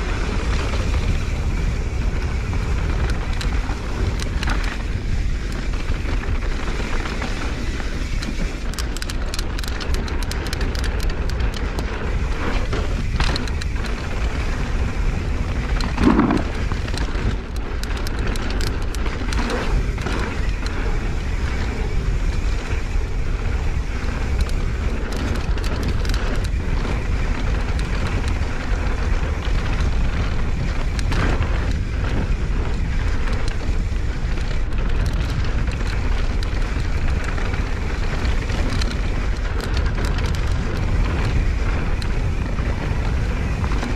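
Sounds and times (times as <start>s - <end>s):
bike clicks and rattles: 0.0s - 43.9s
wind buffeting microphone: 0.0s - 43.9s
tyre rumble: 15.6s - 17.2s.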